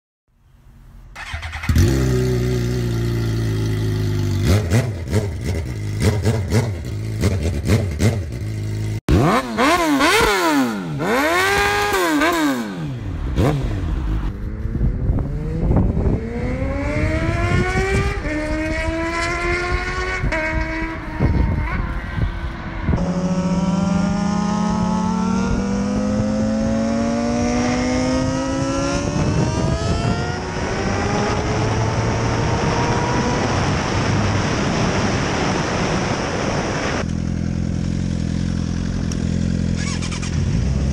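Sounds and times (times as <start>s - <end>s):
motorcycle accelerating through gears: 1.2s - 40.9s
sport bike passing at speed: 1.2s - 40.9s
motorcycle engine with sharp pops: 38.9s - 40.4s.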